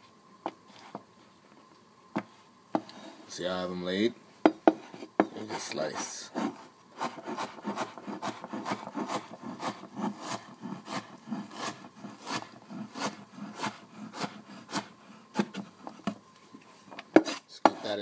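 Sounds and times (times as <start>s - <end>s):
knife chopping on wooden board: 4.5s - 5.6s, 6.4s - 16.2s, 17.1s - 17.9s.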